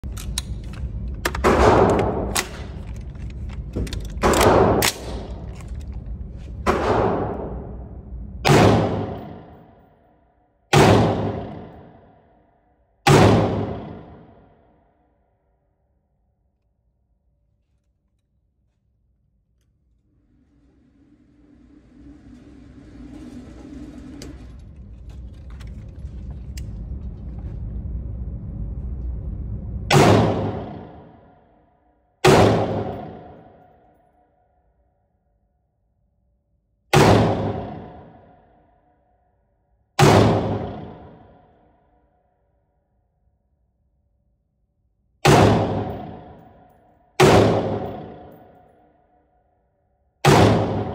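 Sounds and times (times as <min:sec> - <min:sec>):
low steady rumble: 0:00.0 - 0:09.9, 0:19.1 - 0:31.5
pistol shots echoing indoors: 0:01.3 - 0:03.0, 0:03.9 - 0:05.7, 0:06.6 - 0:15.2, 0:29.9 - 0:34.4, 0:36.9 - 0:39.2, 0:40.0 - 0:42.1, 0:45.2 - 0:50.9.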